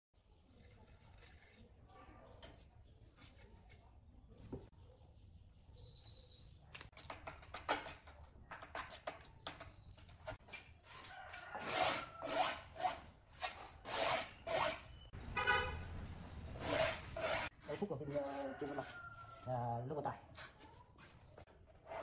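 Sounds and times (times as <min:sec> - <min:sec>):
scraper spreading adhesive on stone: 0:00.4 - 0:01.8.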